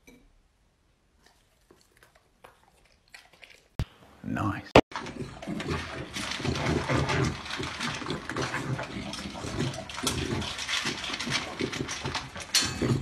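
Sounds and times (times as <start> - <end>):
dog crunching kibble: 4.9 - 13.0
kibble clattering in metal bowl: 4.9 - 13.0.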